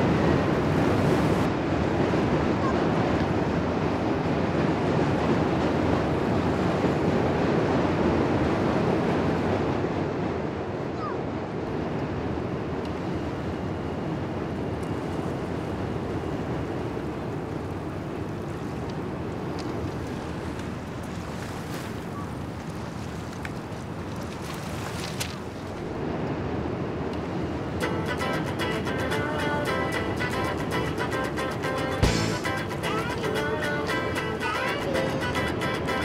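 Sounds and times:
wind: 0.0s - 36.0s
water washing on pebbles: 22.4s - 25.9s.

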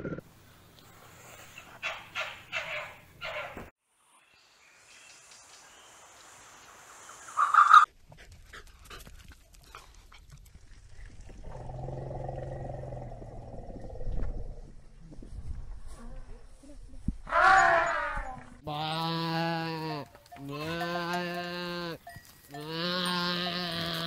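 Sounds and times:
long low animal call: 11.4s - 14.7s.

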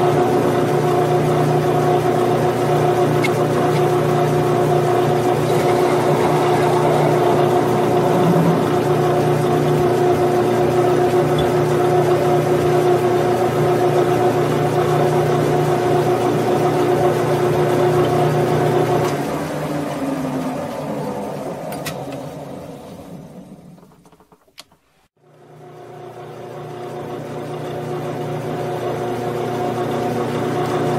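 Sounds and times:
metal lathe motor humming: 2.0s - 19.0s.

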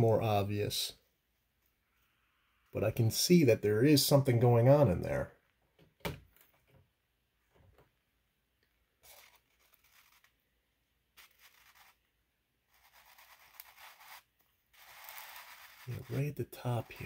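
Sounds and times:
eggshell scraping on cardboard: 11.2s - 12.0s, 12.7s - 17.0s.

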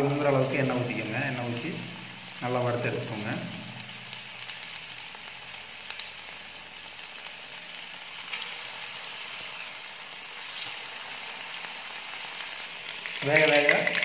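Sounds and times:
patties sizzling in oil: 0.0s - 14.0s.

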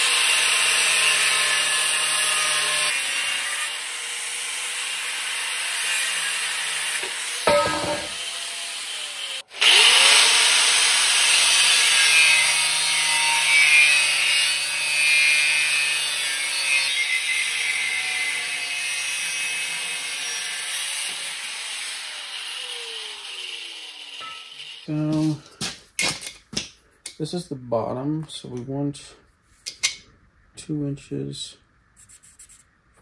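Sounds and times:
angle grinder grinding steel: 0.0s - 25.8s.

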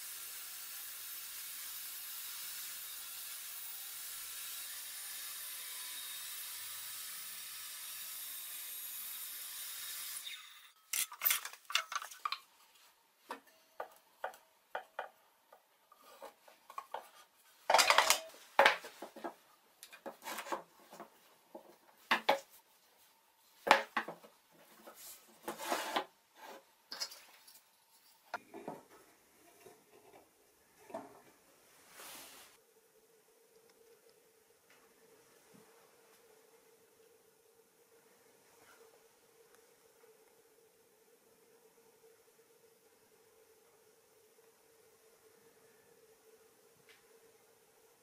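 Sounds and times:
steady hiss: 0.0s - 2.6s, 30.4s - 48.0s.

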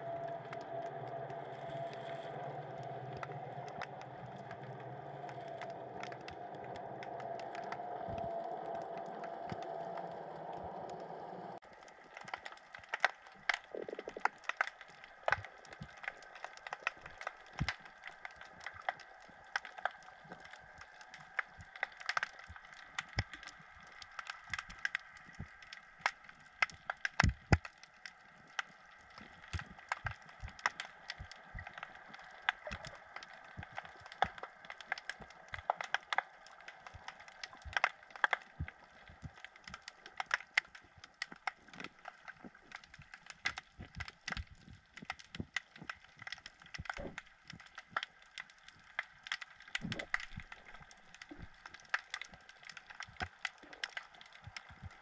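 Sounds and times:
faint steady hum: 0.0s - 55.0s
underwater clicks crackling: 0.0s - 55.0s.

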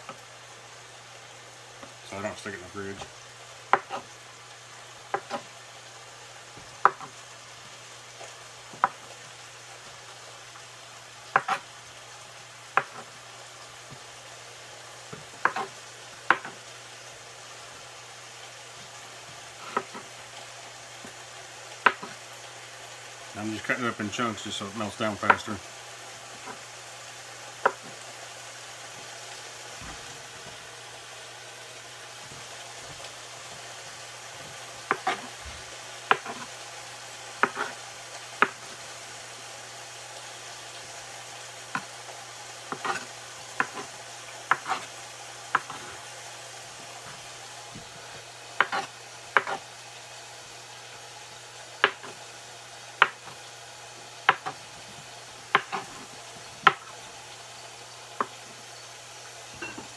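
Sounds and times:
knife tapping cutting board: 6.8s - 7.1s, 11.3s - 11.6s, 15.4s - 15.7s, 16.3s - 16.6s, 27.6s - 27.9s, 34.9s - 35.2s, 36.1s - 36.4s, 37.4s - 37.7s, 43.6s - 43.9s, 45.5s - 45.8s, 49.4s - 49.6s, 51.8s - 52.1s, 53.0s - 53.3s, 54.3s - 54.6s, 55.5s - 55.9s, 56.6s - 56.9s.

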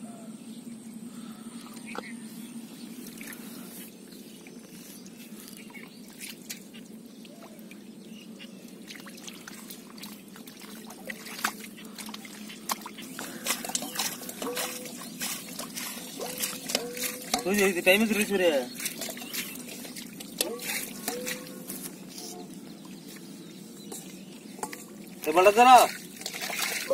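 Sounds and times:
water trickling and dripping: 2.9s - 26.9s
metal pot scooping water: 8.7s - 26.9s
hands splashing in muddy water: 8.8s - 23.3s, 23.9s - 26.9s.

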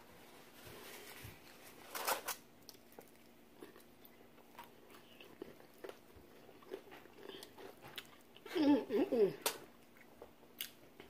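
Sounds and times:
chewing: 2.6s - 8.6s.

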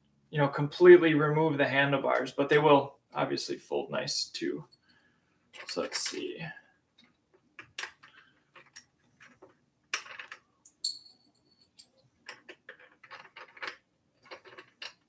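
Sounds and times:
short metallic ring: 10.8s - 11.9s.

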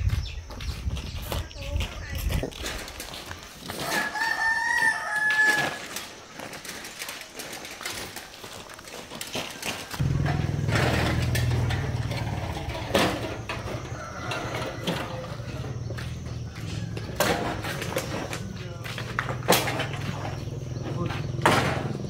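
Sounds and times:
machine humming: 10.0s - 13.6s.

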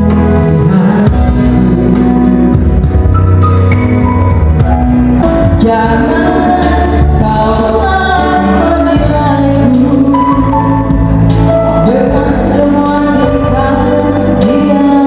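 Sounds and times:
person singing: 0.0s - 2.6s, 5.3s - 15.0s
electronic keyboard music: 0.0s - 15.0s.

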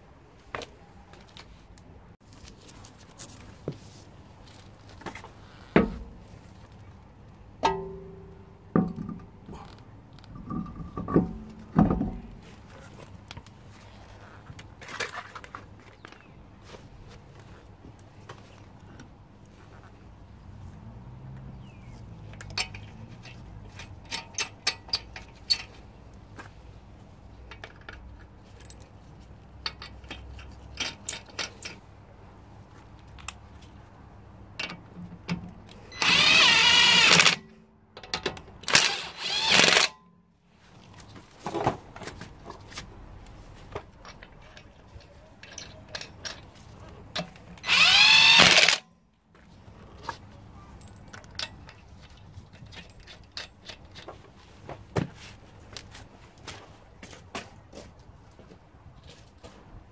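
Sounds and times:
power tool spinning wheel nuts: 36.0s - 37.4s, 38.6s - 39.9s, 47.6s - 48.9s.

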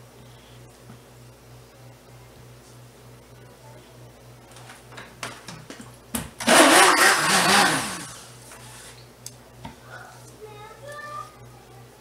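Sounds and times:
stick blender motor: 6.4s - 8.2s.

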